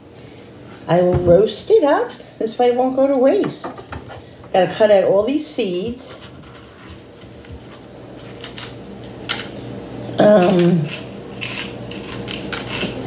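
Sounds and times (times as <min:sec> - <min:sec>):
knife scraping squash: 0:05.9 - 0:08.8, 0:10.2 - 0:13.0.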